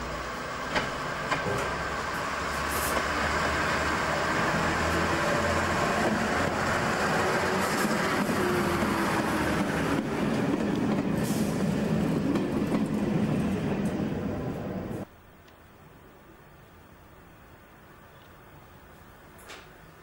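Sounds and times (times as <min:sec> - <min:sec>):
train wheels on rails: 0:00.0 - 0:15.1
diesel train engines: 0:00.0 - 0:20.0.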